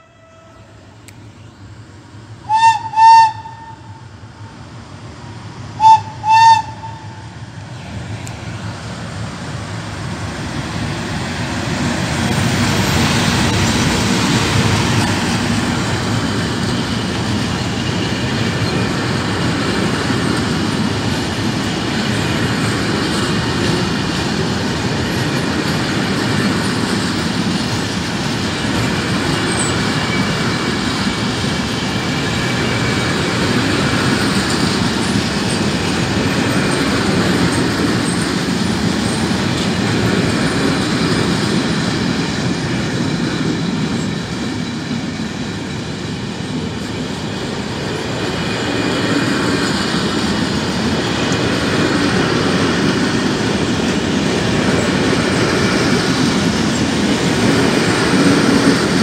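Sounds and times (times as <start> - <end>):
locomotive horn blasts: 0.0 - 0.8, 2.5 - 4.0, 5.8 - 7.2
freight train rumbling past: 0.0 - 59.0.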